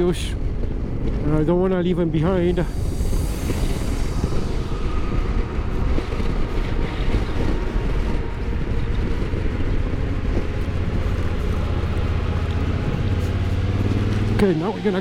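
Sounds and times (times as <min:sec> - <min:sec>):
wind buffeting microphone: 0:00.0 - 0:15.0
motorcycle engine running: 0:05.9 - 0:15.0.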